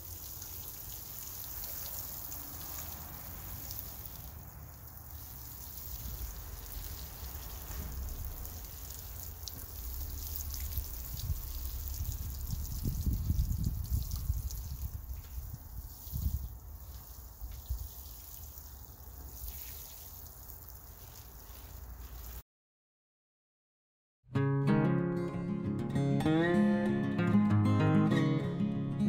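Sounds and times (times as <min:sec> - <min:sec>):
water shower pattering on mulch: 0:00.0 - 0:22.4.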